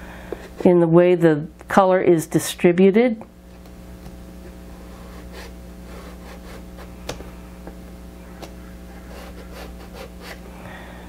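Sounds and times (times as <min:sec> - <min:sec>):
steady low hum: 0:00.0 - 0:11.0
pastel scratching on paper: 0:04.8 - 0:06.9, 0:08.9 - 0:10.4.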